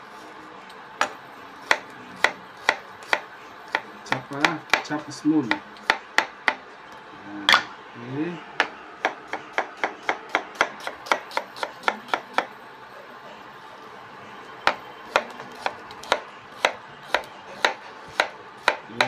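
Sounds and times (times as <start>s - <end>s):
knife chopping on glass board: 14.7s - 19.0s.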